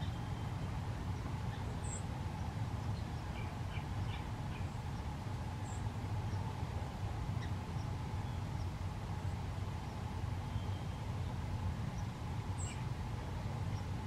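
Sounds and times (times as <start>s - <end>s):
faint high bird chirps: 0.0s - 4.8s, 7.4s - 12.9s
low background rumble: 0.0s - 14.0s.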